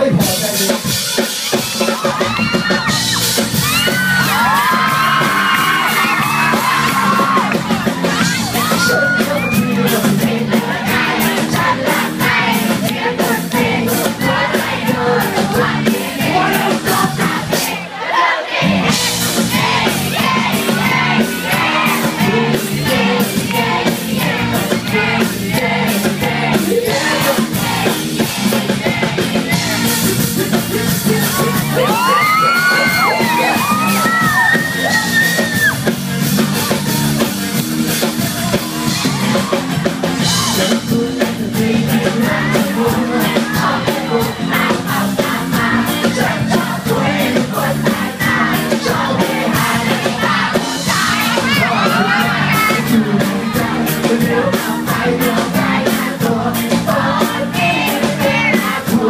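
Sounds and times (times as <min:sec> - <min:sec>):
bass guitar: 0:00.0 - 0:17.8, 0:18.6 - 0:59.0
drums: 0:00.0 - 0:59.0
man singing into a microphone: 0:08.5 - 0:12.0, 0:30.0 - 0:33.2, 0:40.4 - 0:49.7, 0:51.5 - 0:59.0.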